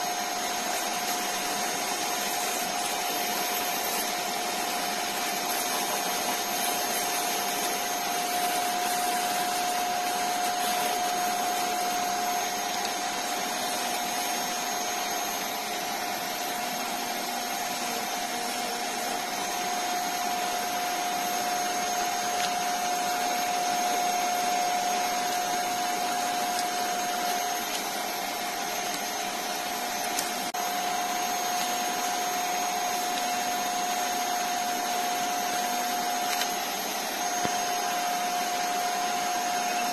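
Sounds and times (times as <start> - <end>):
wood lathe whining: 0.0 - 39.9
sandpaper rubbing on wood: 5.2 - 12.6.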